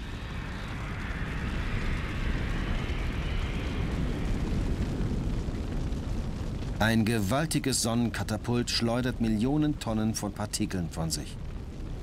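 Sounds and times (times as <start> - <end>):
rushing roaring hiss: 0.0 - 6.0
deep rumble: 0.0 - 12.0.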